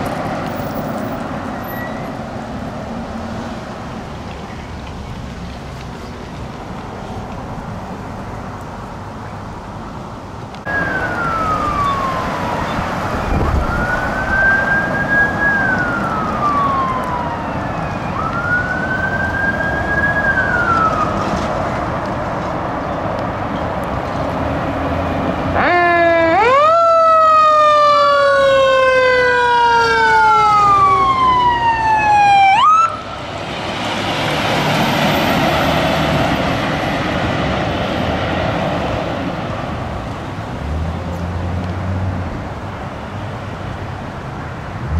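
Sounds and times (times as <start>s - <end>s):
fire engine siren wailing: 10.6s - 22.2s, 25.4s - 39.6s
second siren tone: 10.7s - 21.1s.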